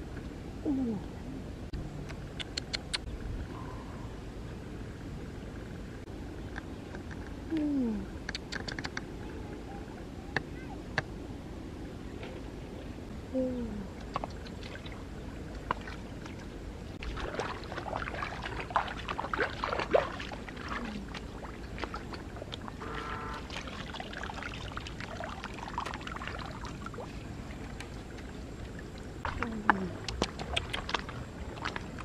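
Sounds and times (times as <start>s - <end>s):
footsteps squelching in mud: 17.0s - 26.2s, 29.2s - 32.0s.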